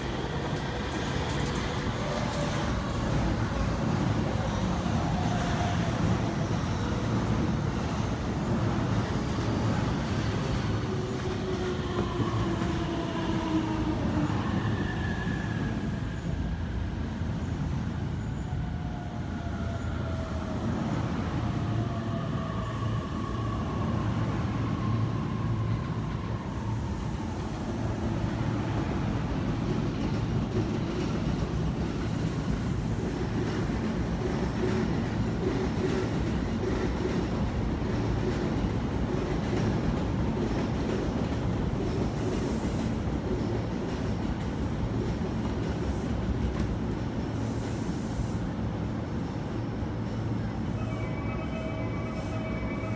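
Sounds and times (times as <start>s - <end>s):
wheels rumbling on rail: 0.0s - 52.9s.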